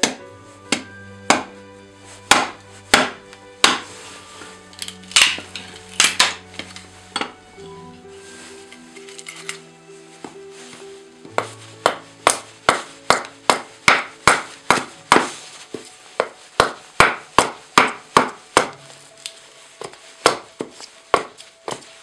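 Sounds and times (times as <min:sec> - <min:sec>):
hatchet chopping wood: 0:00.0 - 0:01.5, 0:02.3 - 0:03.9, 0:06.0 - 0:06.4, 0:11.8 - 0:15.4, 0:16.2 - 0:18.8, 0:19.8 - 0:21.8
background music: 0:00.0 - 0:22.0.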